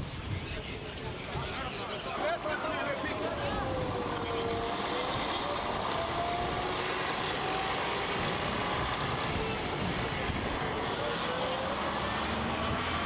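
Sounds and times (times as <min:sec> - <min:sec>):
bus engine driving off: 0:01.0 - 0:13.0.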